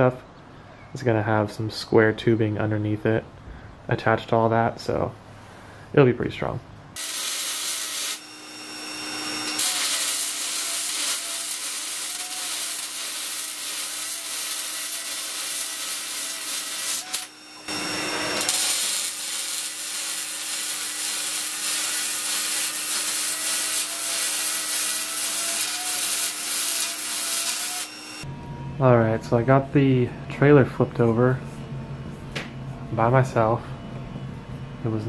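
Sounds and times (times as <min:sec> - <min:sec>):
welding arc crackle: 0:07.0 - 0:28.3
low hum: 0:28.2 - 0:35.0.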